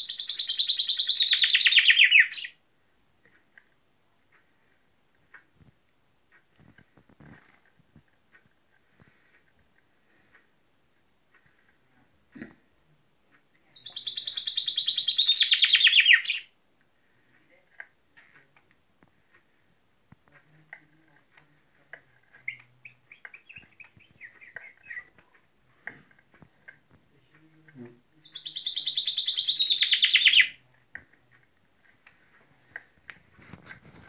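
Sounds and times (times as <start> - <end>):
bird chirps and calls: 0.0 - 2.6, 13.8 - 16.5, 22.4 - 25.2, 28.2 - 30.6.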